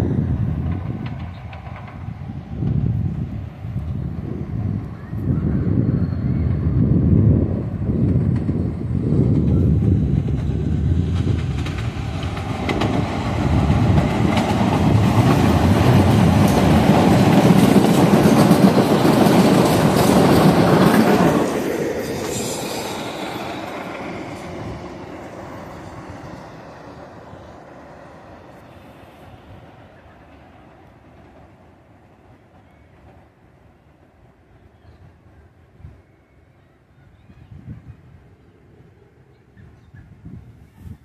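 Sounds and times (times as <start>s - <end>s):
subway train wheels clicking: 0.0s - 36.5s
high squeal: 4.8s - 7.1s, 20.8s - 29.0s.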